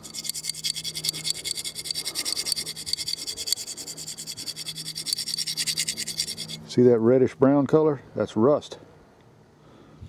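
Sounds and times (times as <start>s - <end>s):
coin scraping rusty metal tube: 0.0s - 6.7s.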